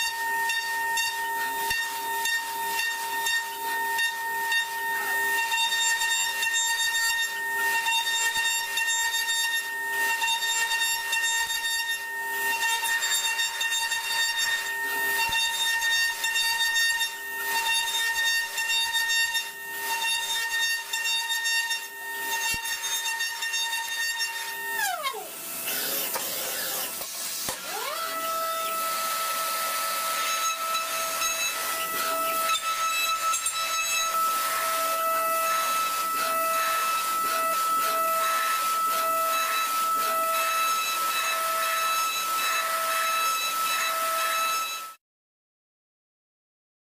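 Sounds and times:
milling machine spindle whine: 0.0 - 44.9
hiss and crackle of cutting metal: 25.5 - 27.9, 28.5 - 44.5.

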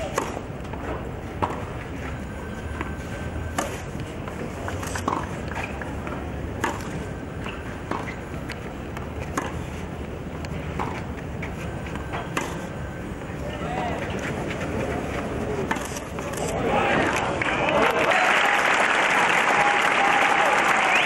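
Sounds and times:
tennis racket hitting ball: 0.0 - 1.8, 2.7 - 9.8, 10.6 - 12.8, 15.6 - 16.3.

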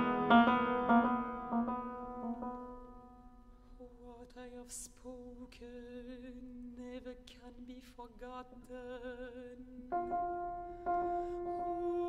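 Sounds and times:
piano chord: 0.0 - 3.5, 9.9 - 12.0
contralto voice singing softly: 3.8 - 12.0.

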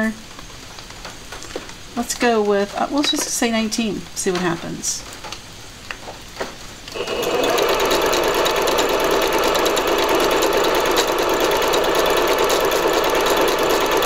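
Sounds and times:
sewing machine stitching: 6.9 - 14.0.

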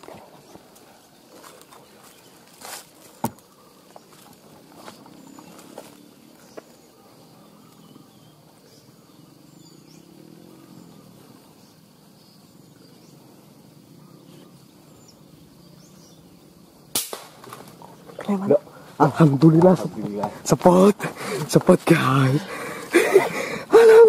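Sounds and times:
faint bird chirps: 1.5 - 16.8
loud gunshot: 16.9 - 17.4.

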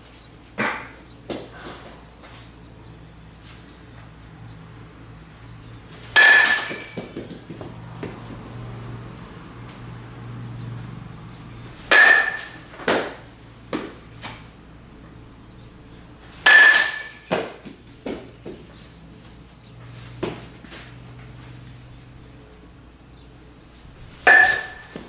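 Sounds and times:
metal bat pinging ball: 6.2 - 7.7, 11.9 - 14.5, 16.4 - 18.2, 24.2 - 25.0
ball knocking and bouncing: 6.8 - 8.2.

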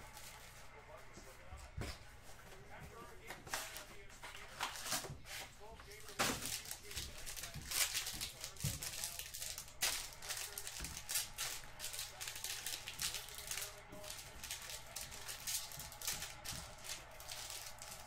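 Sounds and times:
cards shuffling and crinkling: 0.0 - 18.0
card packs being torn open: 3.5 - 5.1, 5.8 - 18.0.

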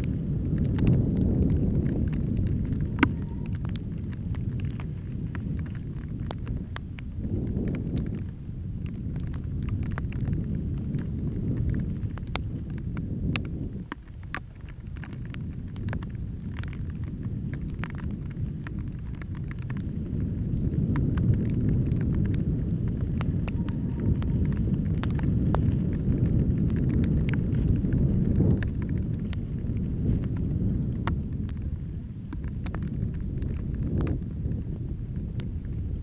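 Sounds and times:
wind rumbling on microphone: 0.0 - 36.0
bike clicks and rattles: 7.6 - 31.7.

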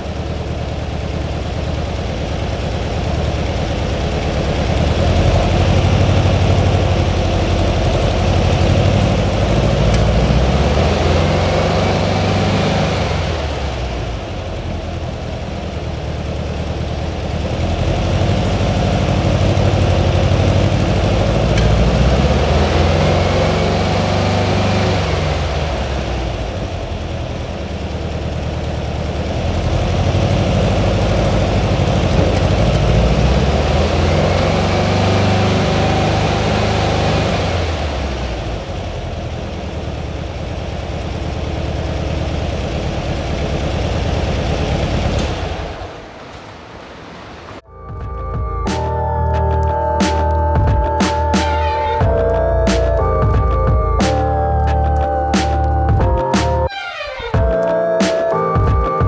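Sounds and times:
car engine running: 0.0 - 56.7.

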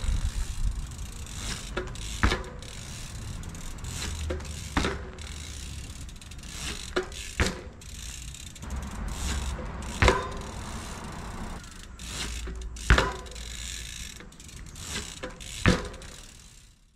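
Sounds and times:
bike tyres rolling on asphalt: 0.0 - 16.8
freewheel ticking: 0.0 - 16.8
bike landing thud: 1.4 - 3.1, 4.0 - 5.6, 6.6 - 7.8, 8.6 - 11.6, 12.3 - 13.4, 14.9 - 16.2.

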